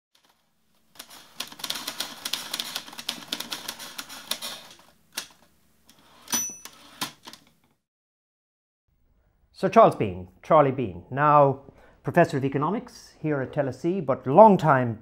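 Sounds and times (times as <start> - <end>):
typewriter keys clacking: 0.9 - 5.4.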